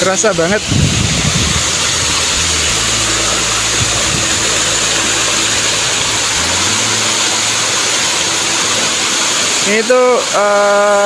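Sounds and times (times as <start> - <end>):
wind rumbling on microphone: 0.0 - 8.8
waterfall roaring: 0.0 - 11.0.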